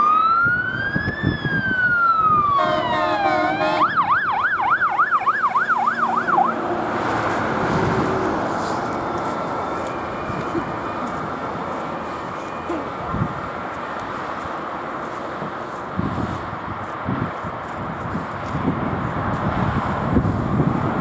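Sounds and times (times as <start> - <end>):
fire engine siren wailing and yelping: 0.0 - 14.9
road traffic noise: 0.0 - 21.0
truck engine: 2.0 - 21.0.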